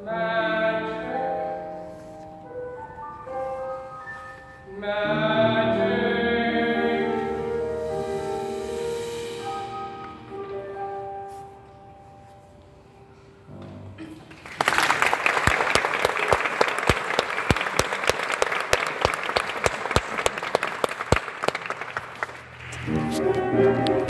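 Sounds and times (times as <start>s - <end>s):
music: 0.0s - 14.2s, 22.5s - 24.0s
audience applauding: 14.2s - 23.2s.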